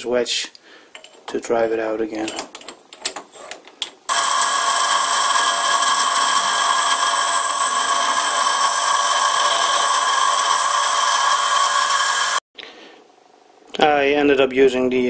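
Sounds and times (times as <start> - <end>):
bench grinder grinding steel: 4.1 - 12.4.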